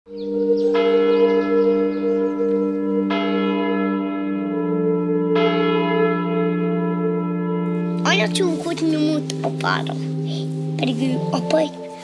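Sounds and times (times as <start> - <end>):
church bell tolling: 0.1 - 12.0.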